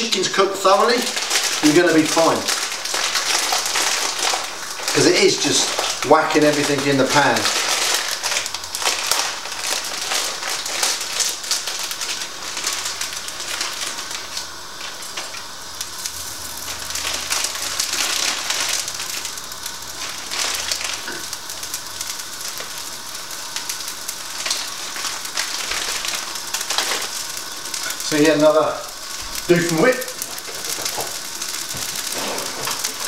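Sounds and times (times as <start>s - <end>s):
hot oil sizzling in a frying pan: 0.0s - 33.0s.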